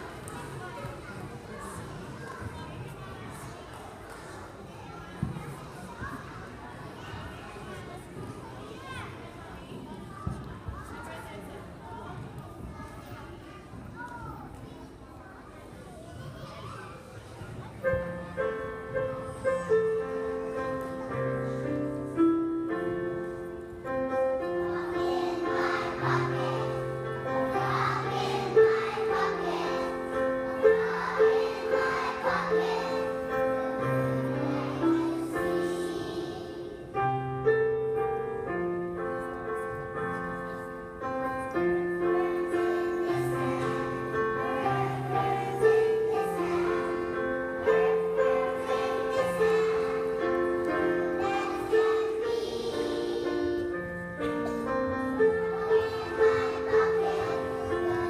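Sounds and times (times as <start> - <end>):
children's choir singing: 0.0 - 8.5, 17.6 - 58.0
piano accompaniment: 17.8 - 58.0.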